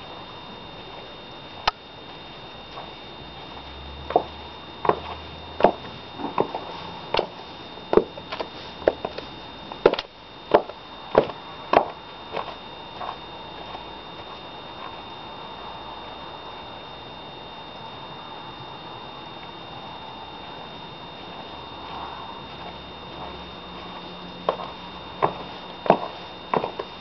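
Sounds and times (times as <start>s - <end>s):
high heels clicking on hard ground: 4.0s - 13.8s, 22.6s - 26.9s.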